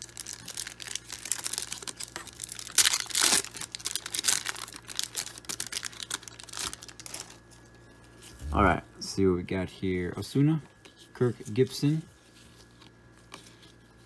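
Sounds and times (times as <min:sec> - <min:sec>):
foil wrapper crinkling and tearing: 0:00.0 - 0:08.3.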